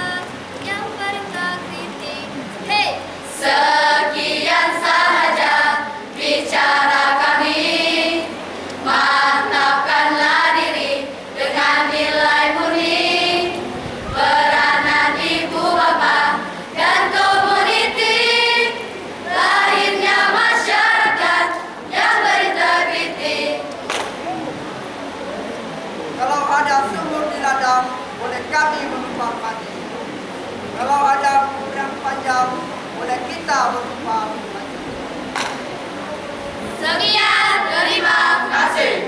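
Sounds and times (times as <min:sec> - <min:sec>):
group of students singing: 0:03.3 - 0:23.7, 0:36.7 - 0:39.0.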